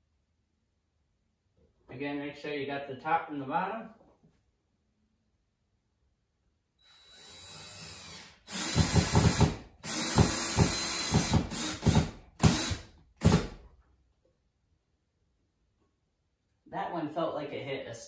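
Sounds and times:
cordless drill driving screw: 0:06.8 - 0:13.6.

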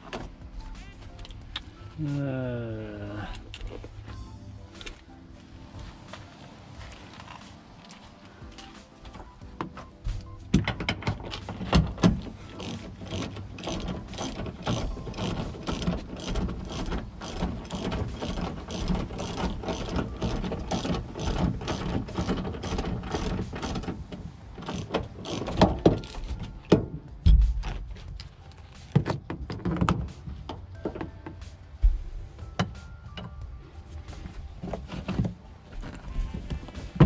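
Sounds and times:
socket ratchet clicking: 0:10.6 - 0:24.0.

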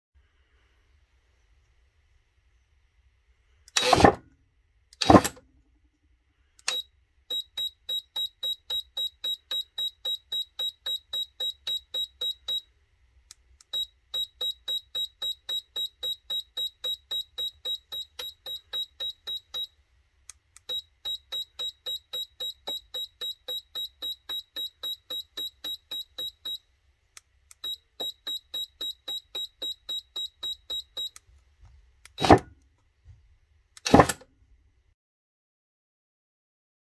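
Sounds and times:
short electronic beeps: 0:06.7 - 0:12.7, 0:13.7 - 0:19.7, 0:20.7 - 0:26.6, 0:27.6 - 0:31.2.

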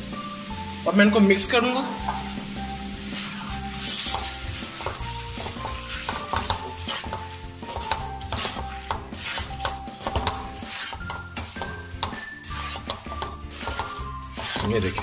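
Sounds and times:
sizzling: 0:00.0 - 0:15.0
spoon scraping metal pan: 0:02.0 - 0:15.0.

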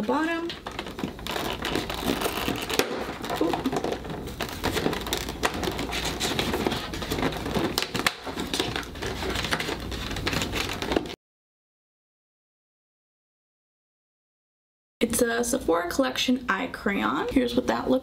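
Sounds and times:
cardboard tearing and crackling: 0:00.6 - 0:11.2.

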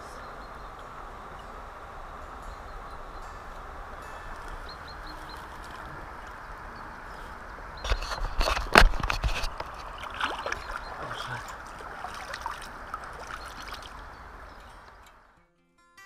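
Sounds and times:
water splashing: 0:00.0 - 0:15.3
flowing river water: 0:00.0 - 0:15.4
water dripping from hands: 0:09.7 - 0:15.2.

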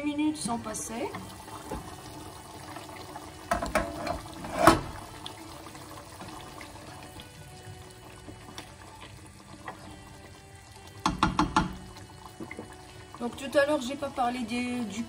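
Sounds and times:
pot bubbling and simmering: 0:00.0 - 0:15.0
steel lid clunk: 0:03.5 - 0:05.0
steel lid knocking: 0:11.0 - 0:11.8.

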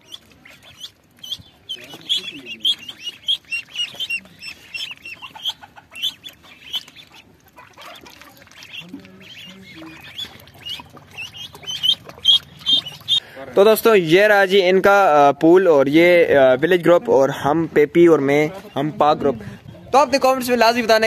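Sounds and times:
ducklings peeping: 0:00.0 - 0:14.0, 0:18.6 - 0:21.0.

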